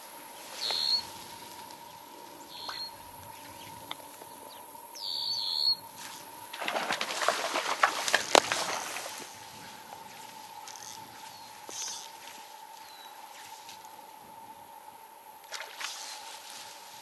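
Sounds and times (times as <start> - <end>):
bird chirping: 0.6 - 1.2, 2.4 - 5.8
fish splashing in stream: 6.4 - 9.9.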